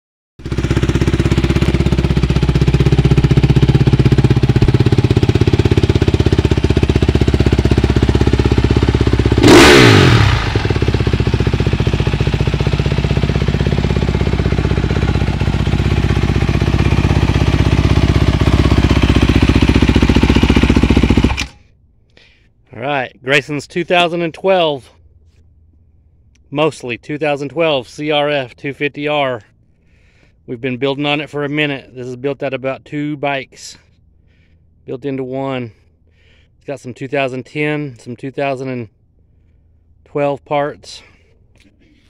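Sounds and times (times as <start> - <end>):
motorcycle engine running: 0.4 - 21.6.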